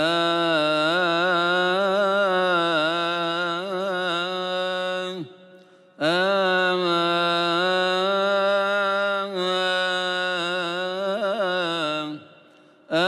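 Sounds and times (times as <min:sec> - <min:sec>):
man chanting unaccompanied: 0:00.0 - 0:13.0
breath: 0:05.5 - 0:06.0, 0:12.3 - 0:12.9.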